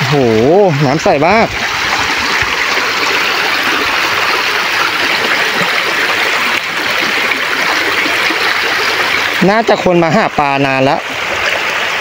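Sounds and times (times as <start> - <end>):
stream running over rocks: 0.0 - 12.0.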